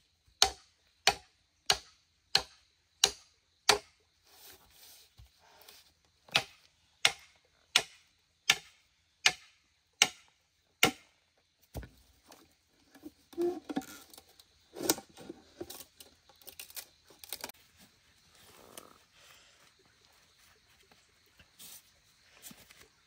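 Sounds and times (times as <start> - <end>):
sharp chopping strikes: 0.4 - 3.9, 6.3 - 11.1.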